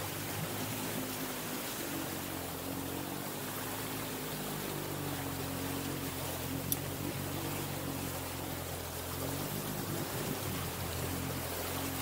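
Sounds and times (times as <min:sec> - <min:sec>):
engine drone: 0:00.0 - 0:12.0
water rushing and splashing: 0:00.0 - 0:12.0.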